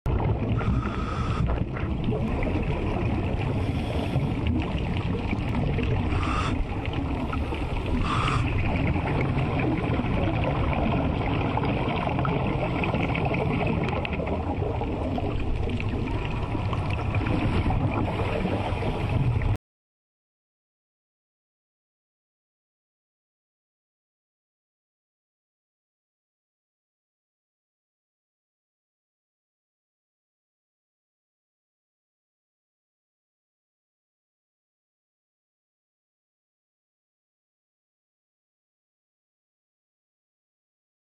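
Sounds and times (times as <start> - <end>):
rushing underwater noise: 0.1 - 19.6.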